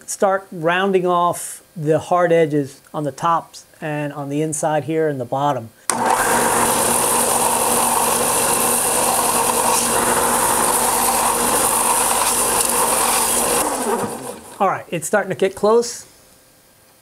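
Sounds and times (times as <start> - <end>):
belt sander running: 5.9 - 14.7.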